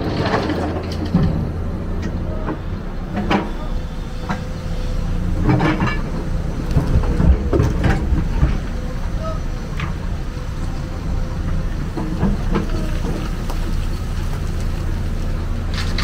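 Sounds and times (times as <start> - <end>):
excavator diesel engine running: 0.0 - 16.0
metallic clanks and knocks: 5.4 - 8.7.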